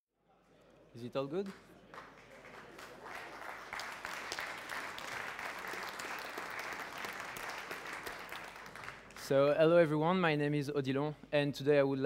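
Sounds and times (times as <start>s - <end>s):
audience applauding: 1.4s - 9.4s.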